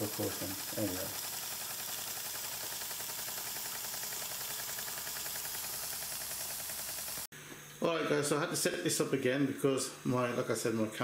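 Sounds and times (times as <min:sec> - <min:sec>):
model steam engine ticking: 0:00.0 - 0:07.3
steam hissing: 0:00.0 - 0:07.3.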